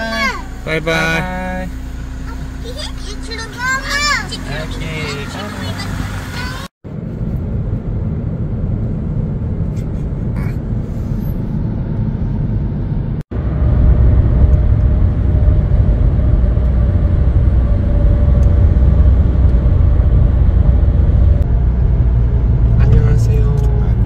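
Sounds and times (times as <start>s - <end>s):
car road and engine noise: 0.0s - 24.0s.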